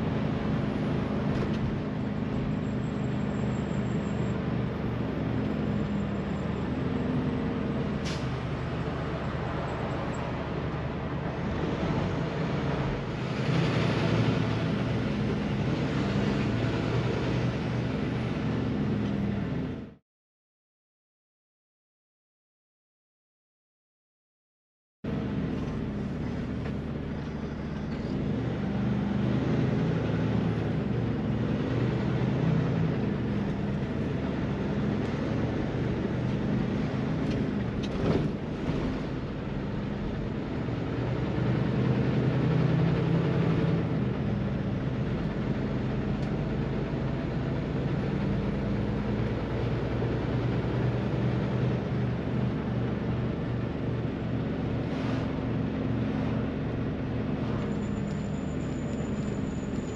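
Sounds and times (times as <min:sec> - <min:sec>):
road noise: 0:00.0 - 0:20.0, 0:25.0 - 0:59.9
truck diesel engine running: 0:25.1 - 0:59.9.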